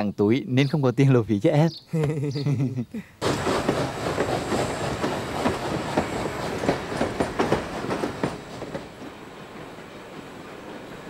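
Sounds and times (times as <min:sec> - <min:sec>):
steady train rumble: 0:03.2 - 0:11.0
train wheels clacking on rails: 0:03.2 - 0:11.0.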